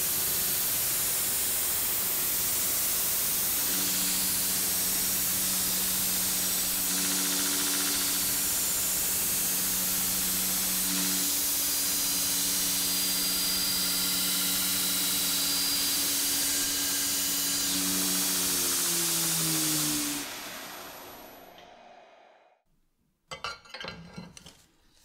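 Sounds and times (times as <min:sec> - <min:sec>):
grinder motor hum: 0:03.2 - 0:21.6
belt grinder grinding steel: 0:03.6 - 0:19.9.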